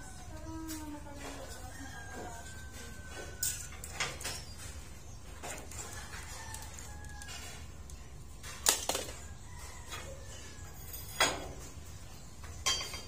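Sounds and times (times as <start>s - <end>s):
distant rooster crowing: 1.3s - 4.2s, 5.4s - 7.8s, 9.0s - 11.6s
steel rebar clinking on metal: 12.6s - 13.0s.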